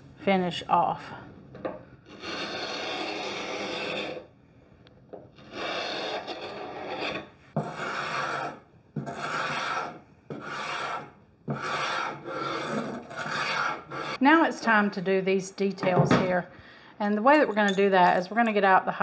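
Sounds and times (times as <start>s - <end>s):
hand scraper rasping on wood: 2.1s - 4.3s, 5.4s - 14.2s.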